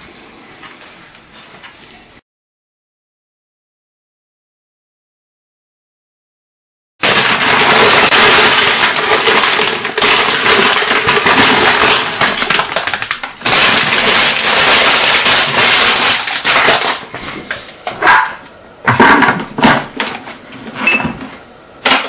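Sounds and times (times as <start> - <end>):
crisps rattling into metal bowl: 7.0 - 17.0
plastic bag crinkling: 7.0 - 17.1.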